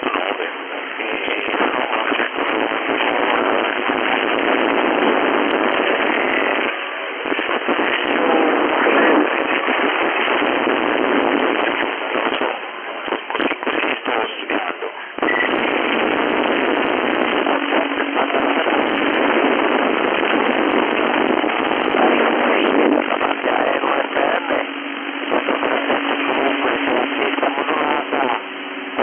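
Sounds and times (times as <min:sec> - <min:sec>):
radio static hiss and crackle: 0:00.0 - 0:29.0.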